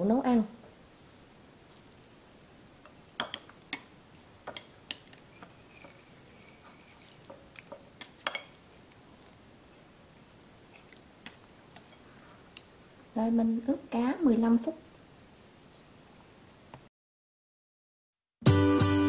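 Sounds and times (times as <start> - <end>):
chopsticks tapping ceramic bowl: 2.8 - 6.0, 7.2 - 8.6.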